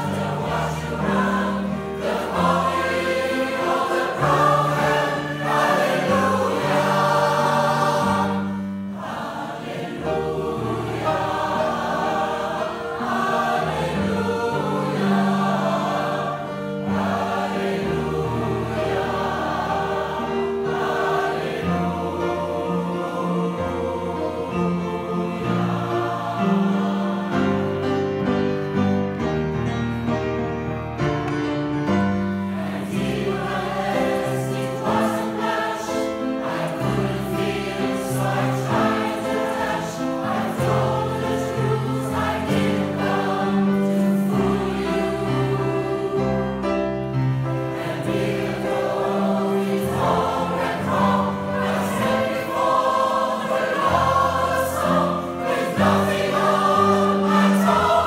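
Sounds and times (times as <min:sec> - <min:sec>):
mixed choir singing: 0:00.0 - 0:29.2, 0:31.9 - 0:58.0
grand piano: 0:00.0 - 0:58.0.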